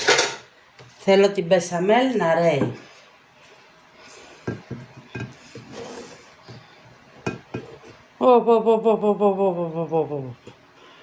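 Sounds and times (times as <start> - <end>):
ceramic plates clinking: 4.5 - 5.5
woman humming: 8.2 - 10.6.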